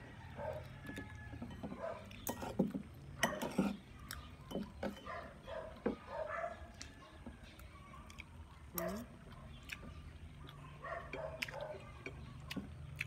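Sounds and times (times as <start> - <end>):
dog barking: 0.4 - 0.7, 1.8 - 2.1, 5.0 - 6.7, 10.6 - 11.9
fork and spoon scraping plate: 1.5 - 3.9.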